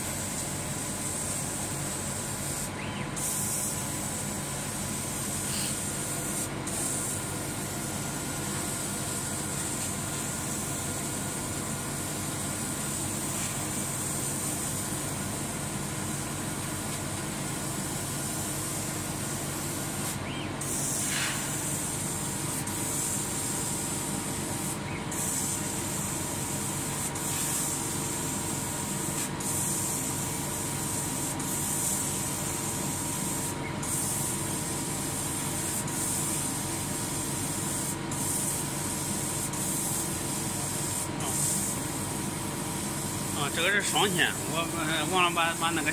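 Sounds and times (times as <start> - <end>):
laser cutter high hiss: 0.0 - 45.9.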